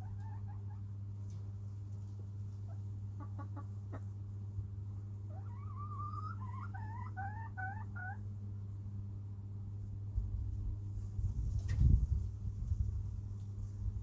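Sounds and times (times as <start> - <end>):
chicken calling and clucking: 0.0 - 0.9, 2.5 - 4.2, 5.2 - 8.3
low electrical hum: 0.0 - 14.0.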